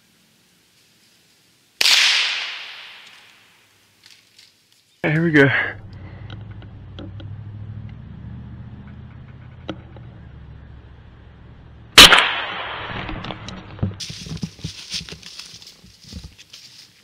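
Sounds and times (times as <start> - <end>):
rifle shot with echo: 1.8 - 3.3, 12.0 - 13.2
faint low hum: 5.0 - 12.0.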